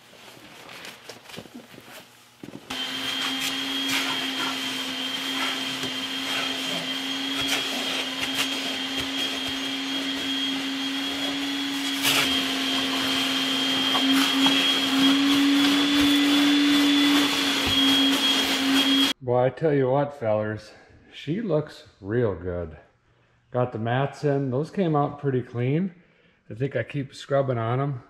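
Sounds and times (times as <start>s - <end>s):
vacuum cleaner running: 0.0s - 19.2s.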